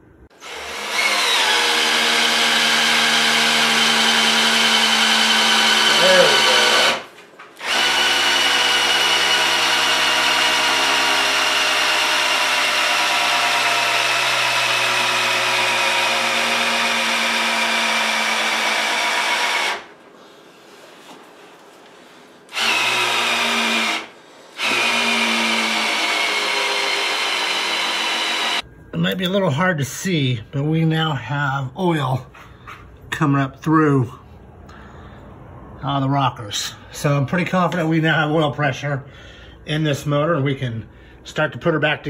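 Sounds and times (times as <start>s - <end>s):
electric drill motor whine: 0.4s - 7.0s, 7.6s - 19.9s, 22.5s - 28.6s.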